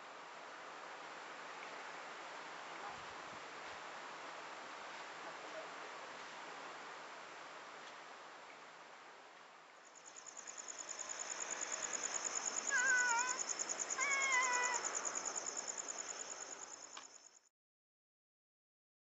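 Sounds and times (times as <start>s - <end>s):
insect trilling: 10.0s - 17.4s
cat meowing: 12.6s - 13.4s, 14.0s - 14.9s.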